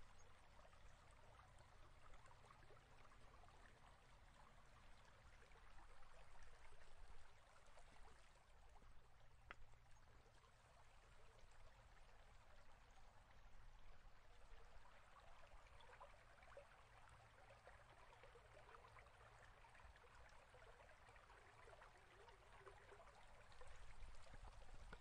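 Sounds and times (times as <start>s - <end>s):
faint crackly hiss: 0.0s - 25.0s.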